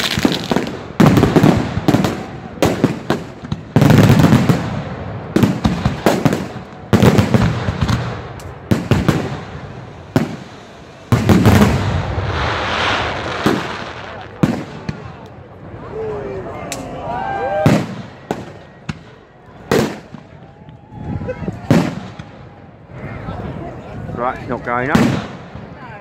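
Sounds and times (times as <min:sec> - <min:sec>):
heavy firework booms: 0:00.0 - 0:15.2, 0:17.6 - 0:19.1, 0:21.6 - 0:22.4, 0:24.9 - 0:25.9.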